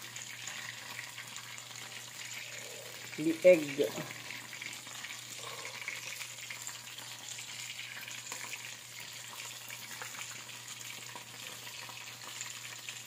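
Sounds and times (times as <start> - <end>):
oil sizzling and crackling: 0.0 - 13.0.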